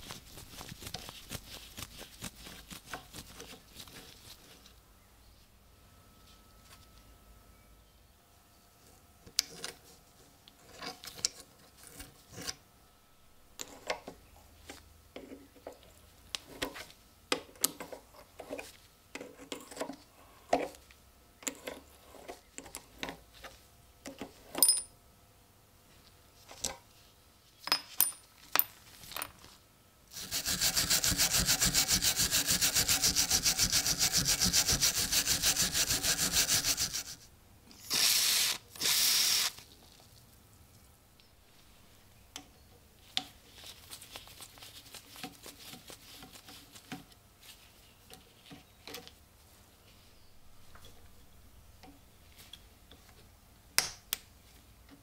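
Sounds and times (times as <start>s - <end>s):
tools scraping and clicking on metal: 10.5s - 12.6s, 13.6s - 20.8s, 21.4s - 23.2s
fast rasping: 30.1s - 37.2s.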